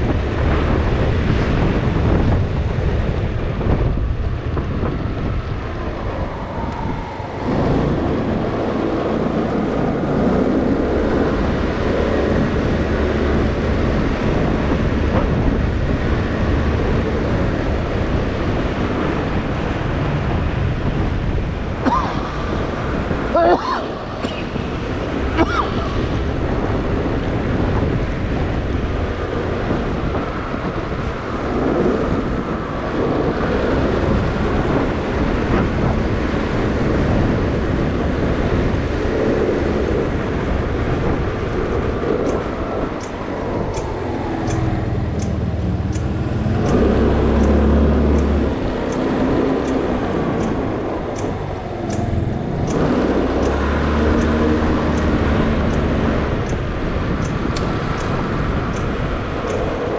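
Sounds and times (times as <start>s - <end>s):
wind noise: 0.0s - 59.9s
light ticking: 43.0s - 56.6s, 57.2s - 59.7s.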